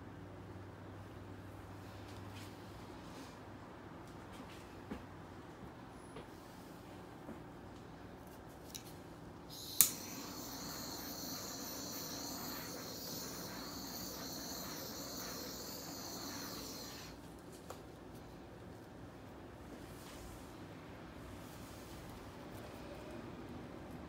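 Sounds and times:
butane torch hissing: 9.5 - 17.2
butane torch igniting click: 9.5 - 17.2.

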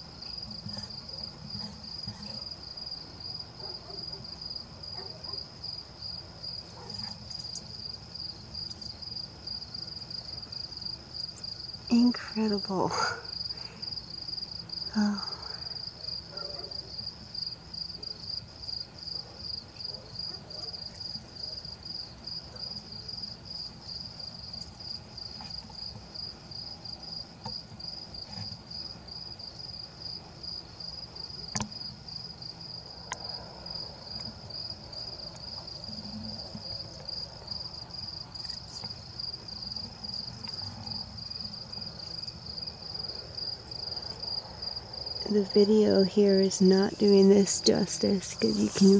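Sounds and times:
cricket chirping: 0.0 - 48.9.

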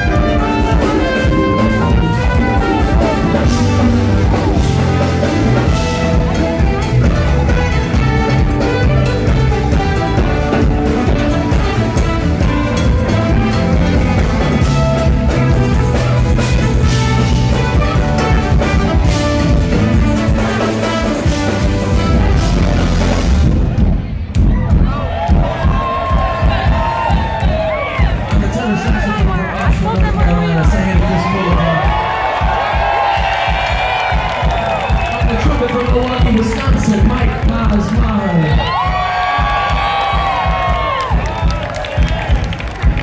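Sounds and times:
saxophone: 0.0 - 23.7
trumpet: 0.0 - 23.8
electric guitars: 0.0 - 24.0
bass: 0.0 - 43.0
drums: 0.0 - 43.0.

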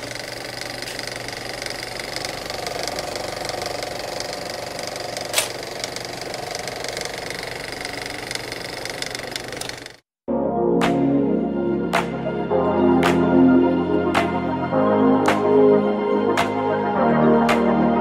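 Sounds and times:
thin high whine: 0.0 - 9.4
mechanical whirring with clicking: 0.0 - 10.0.

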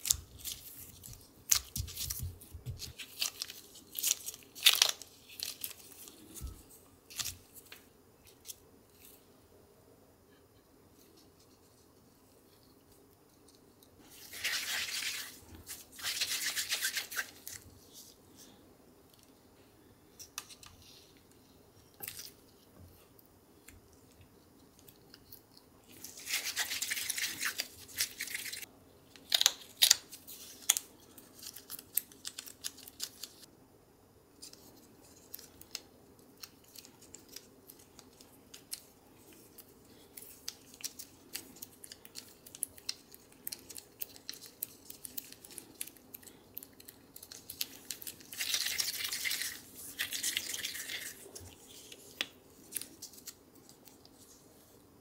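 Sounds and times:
hands squishing dough: 13.4 - 18.0, 23.7 - 33.4, 34.4 - 54.8.

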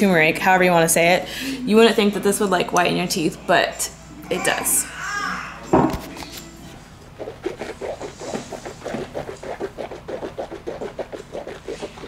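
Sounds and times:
wet squishing of mouth swishing: 7.2 - 12.0.

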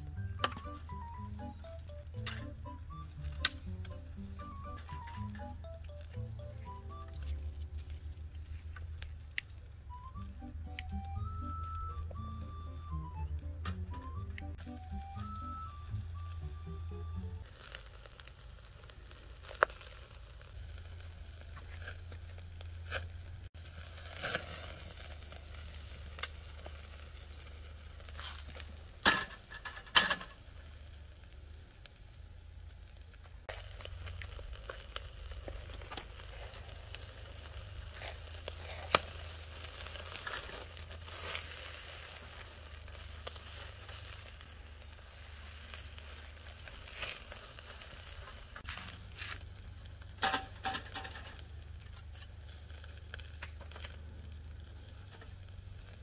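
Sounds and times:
metal grill basket and tongs clicking: 2.2 - 2.6, 28.2 - 30.4, 38.9 - 41.4, 50.2 - 54.0
meat sizzling on a grill: 14.6 - 56.0.

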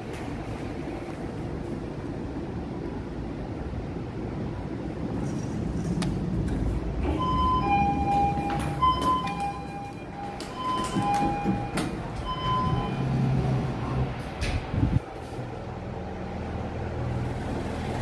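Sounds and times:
lift low rumble: 0.0 - 17.6.

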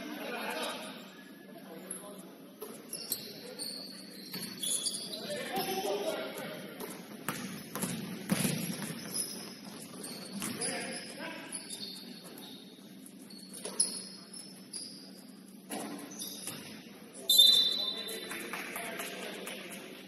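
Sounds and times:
players' voices: 0.0 - 7.3, 9.8 - 13.1
shoe squeaks: 2.6 - 6.0, 7.5 - 18.2
basketball thuds: 6.8 - 9.0.

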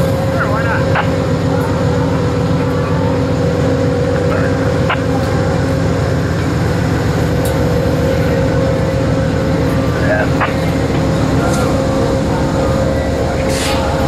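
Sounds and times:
diesel locomotive rumbling and whining: 0.0 - 14.0.

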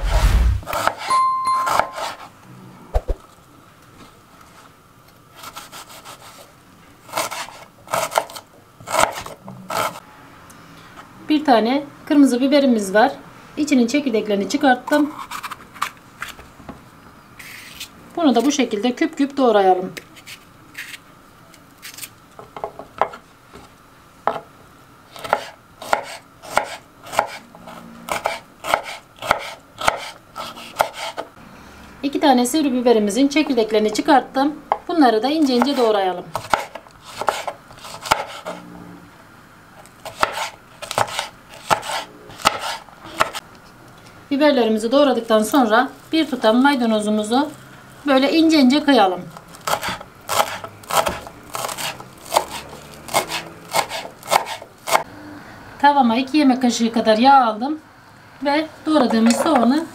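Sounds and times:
knife cutting onion on wooden board: 0.0 - 2.3, 5.4 - 6.5, 7.1 - 10.0, 25.1 - 31.3, 35.4 - 38.6, 40.0 - 43.4, 49.6 - 55.1.

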